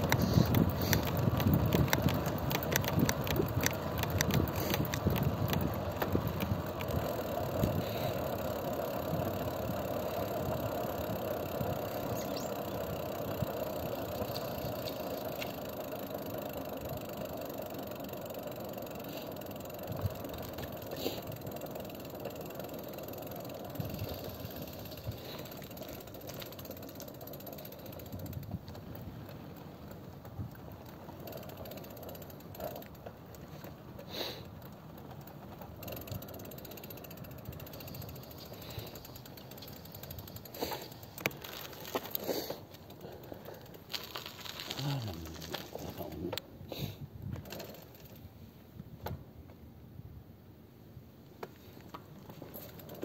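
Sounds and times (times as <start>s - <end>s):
light clicks and ticks: 0.0s - 7.0s
vehicle running on road: 0.0s - 46.4s.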